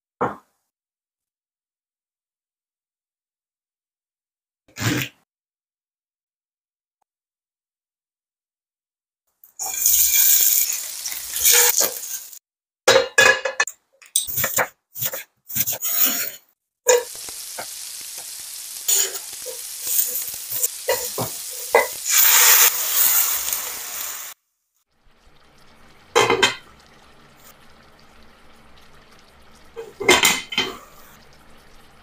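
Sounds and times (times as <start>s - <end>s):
food sizzling in oil: 9.6s - 12.4s, 16.9s - 24.4s, 25.0s - 32.0s
spatula scraping pan: 14.2s - 23.8s.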